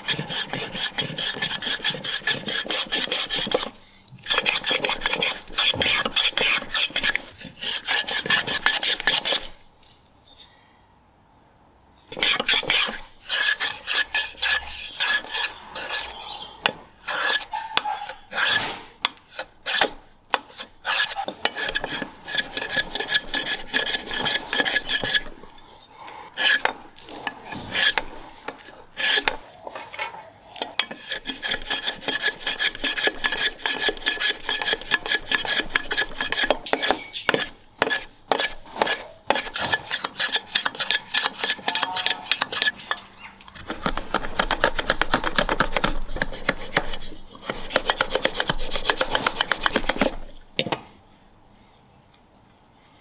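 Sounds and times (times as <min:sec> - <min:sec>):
block plane shaving wood: 0:00.0 - 0:09.6, 0:12.1 - 0:25.5, 0:26.4 - 0:43.0, 0:43.6 - 0:50.4.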